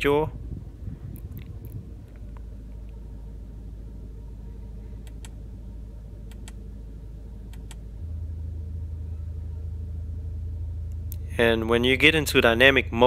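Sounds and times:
car engine idling: 0.0s - 13.0s
light button clicks: 5.0s - 5.4s, 6.3s - 6.6s, 7.5s - 7.8s.

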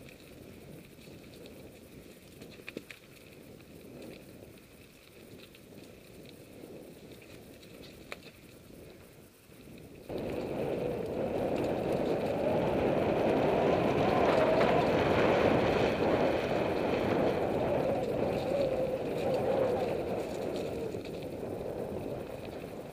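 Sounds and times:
bike tyres rolling on dirt: 0.0s - 22.9s
loud steady rushing noise: 10.1s - 22.9s.

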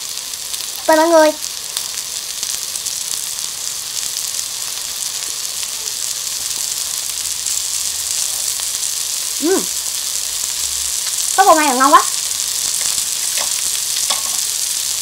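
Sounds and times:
food sizzling on a grill pan: 0.0s - 15.0s
person humming: 9.4s - 9.8s.

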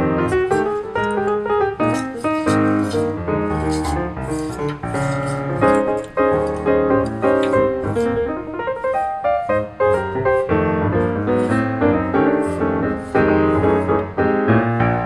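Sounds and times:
background piano music: 0.0s - 15.0s.

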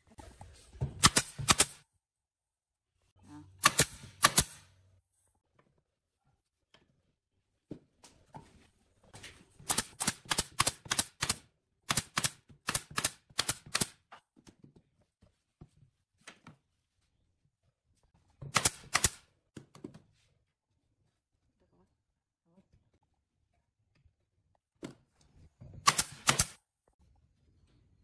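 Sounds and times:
nail gun firing into wood: 1.0s - 1.8s, 3.6s - 4.7s, 9.7s - 13.9s, 18.5s - 19.2s, 25.8s - 26.6s.

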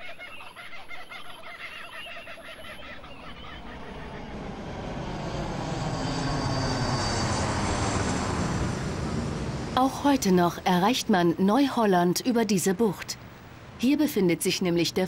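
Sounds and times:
chattering bird calls: 0.0s - 4.4s
jet airliner roar: 3.0s - 10.8s.

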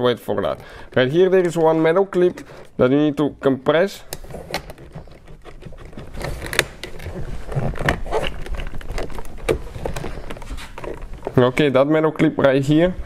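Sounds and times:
handling rustle: 0.3s - 13.0s.

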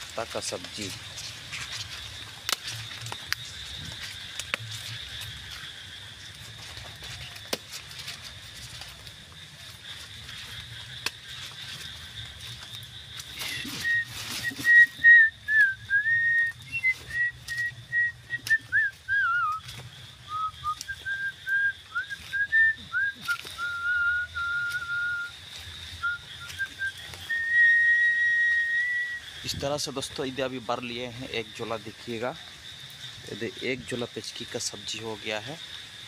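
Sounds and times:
rustling: 0.0s - 28.2s
person whistling a melody: 13.5s - 19.7s, 20.3s - 25.3s, 26.0s - 29.2s.

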